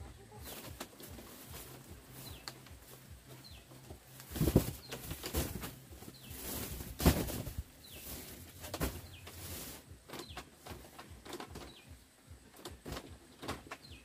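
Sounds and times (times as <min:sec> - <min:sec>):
small bird chirping: 0:00.0 - 0:06.8, 0:07.7 - 0:12.6
dull knocks and thumps: 0:03.2 - 0:09.5.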